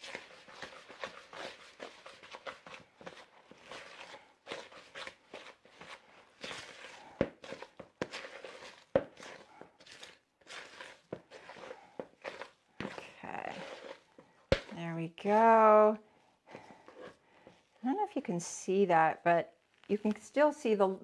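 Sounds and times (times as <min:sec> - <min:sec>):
utensil stirring batter in bowl: 0:00.0 - 0:17.8.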